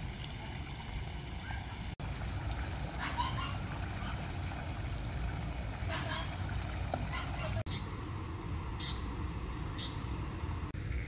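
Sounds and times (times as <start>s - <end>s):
distant voices in water: 0.4s - 7.8s.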